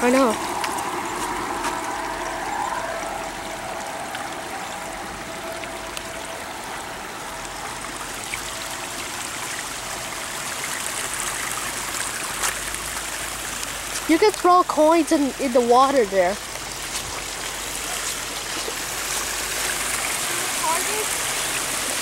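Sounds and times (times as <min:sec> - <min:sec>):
faint steady tone: 0:00.0 - 0:10.9
water running through stream: 0:00.0 - 0:22.0.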